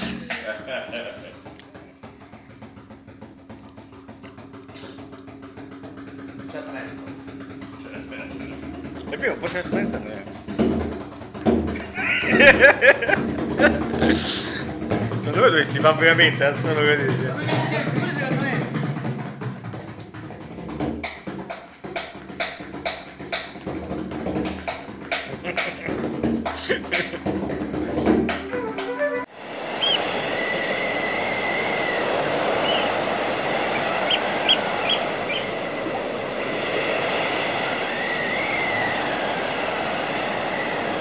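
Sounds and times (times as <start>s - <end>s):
frame drum played: 0.0s - 29.3s
gale-force wind rushing: 29.2s - 41.0s
wind whistling: 29.3s - 41.0s.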